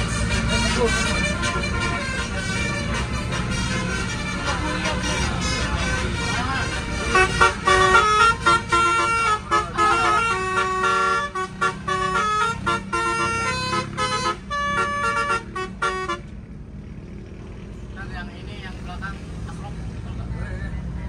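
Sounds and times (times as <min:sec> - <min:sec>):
musical air horn tune: 0:00.0 - 0:16.3
engine and road noise: 0:00.0 - 0:21.0.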